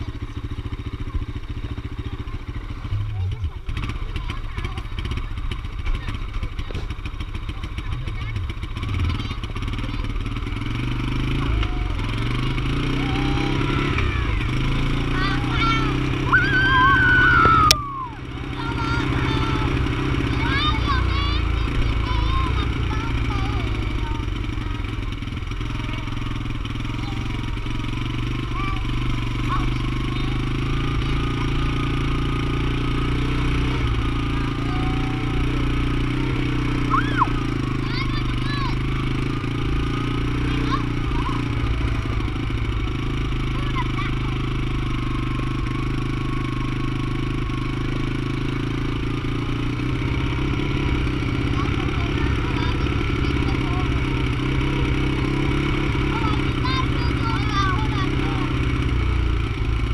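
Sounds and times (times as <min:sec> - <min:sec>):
small vehicle engine running: 0:00.0 - 0:59.9.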